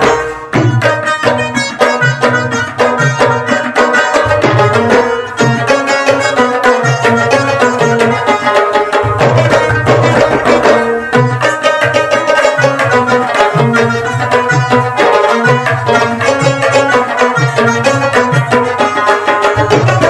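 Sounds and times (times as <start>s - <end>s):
instrumental music with drums: 0.0s - 20.0s.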